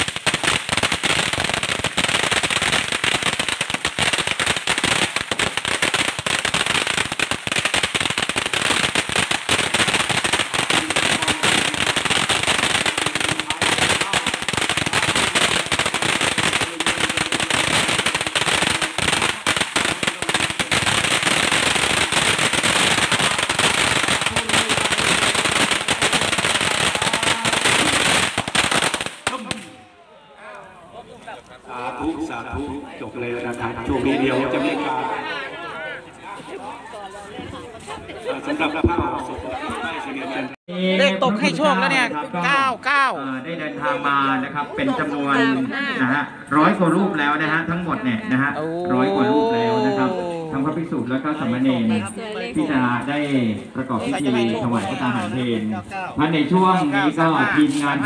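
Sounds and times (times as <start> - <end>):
firecrackers banging: 0.0 - 29.9, 53.5 - 58.0.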